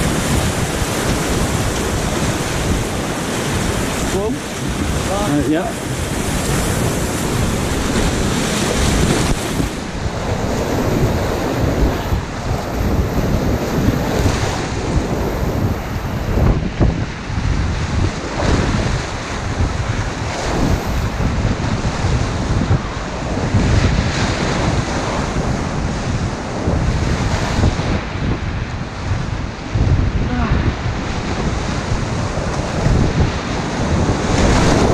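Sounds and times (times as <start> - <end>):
whitewater rapids rushing: 0.0 - 16.5
waves splashing over kayak bow: 0.0 - 34.9.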